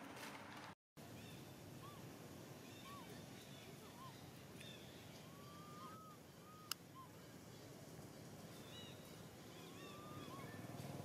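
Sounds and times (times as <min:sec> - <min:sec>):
high whistled animal calls: 0:02.6 - 0:07.2, 0:08.7 - 0:10.7.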